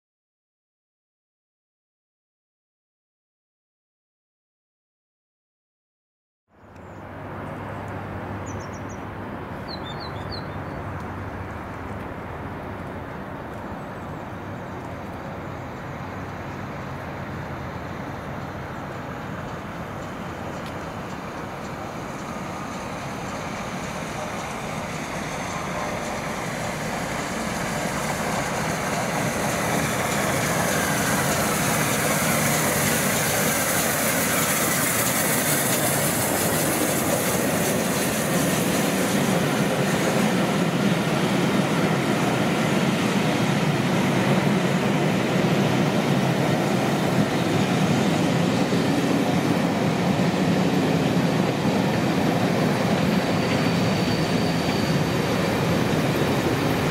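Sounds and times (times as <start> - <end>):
steam locomotive passing: 7.0 - 56.9
rushing hiss of carriages: 14.1 - 56.9.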